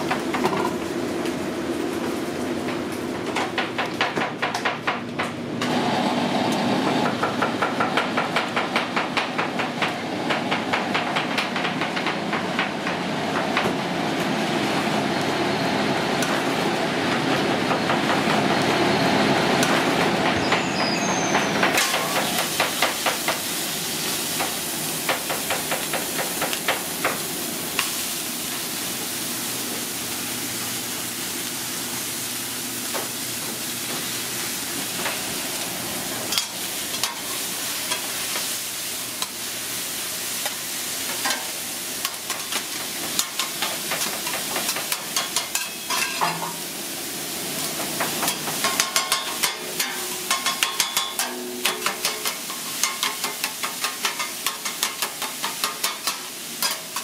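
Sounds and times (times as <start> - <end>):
meat sizzling on griddle: 10.7 - 57.0
metal spatulas clattering on griddle: 40.4 - 46.6, 47.8 - 57.0.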